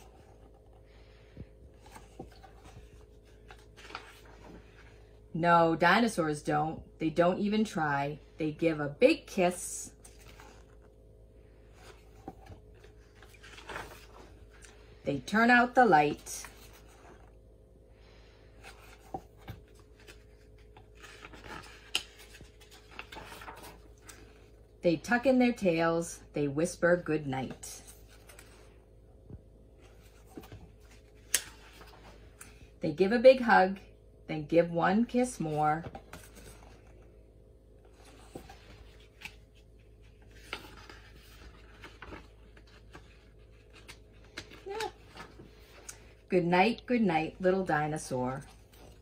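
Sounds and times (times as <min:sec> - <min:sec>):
paper rustling: 0:01.8 - 0:05.0, 0:11.6 - 0:14.8, 0:18.6 - 0:24.6, 0:35.8 - 0:37.0, 0:37.9 - 0:46.2.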